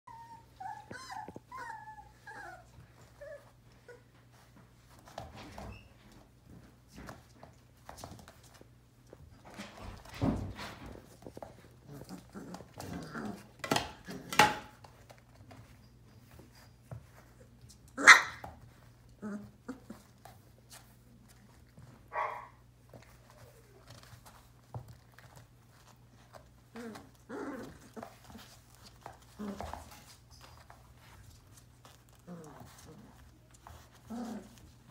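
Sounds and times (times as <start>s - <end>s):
puppy whimpering: 0.0s - 4.2s, 26.7s - 31.1s
paws clicking on floor: 0.1s - 34.9s
puppies scuffling: 0.1s - 34.9s
puppy yapping: 18.0s - 18.4s, 22.1s - 22.6s.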